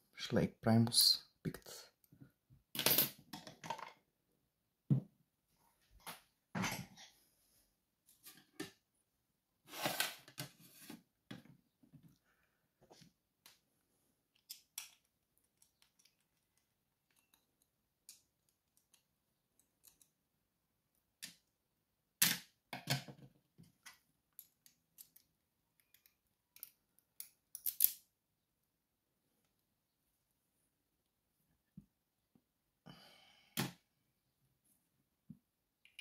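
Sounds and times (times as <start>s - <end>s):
small metal clicks and scrapes: 14.4s - 19.0s.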